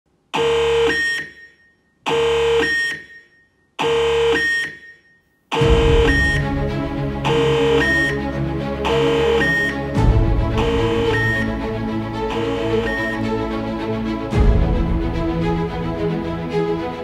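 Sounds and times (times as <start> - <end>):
buzzy synth stabs: 5.6 - 6.6, 7.2 - 8.1, 8.8 - 9.4, 10.5 - 11.6, 12.2 - 13.2
electronic track with deep bass: 5.6 - 16.1.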